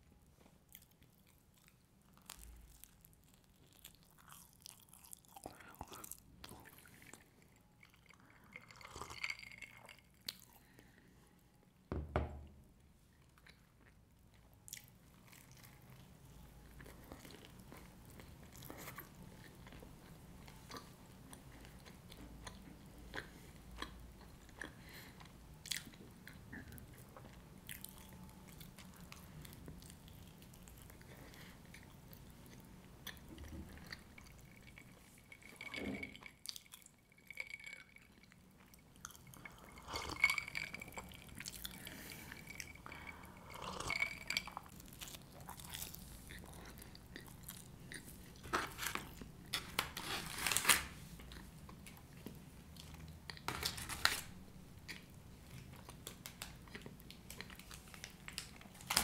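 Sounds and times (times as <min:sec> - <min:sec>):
person chewing pizza: 0:00.6 - 0:11.0, 0:13.2 - 0:35.6, 0:36.3 - 0:50.6.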